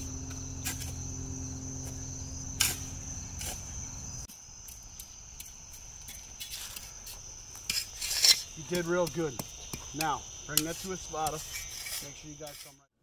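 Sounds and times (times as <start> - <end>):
low hum: 0.0 - 4.3
shovel striking dirt: 0.0 - 12.8
crickets chirring: 0.0 - 12.9.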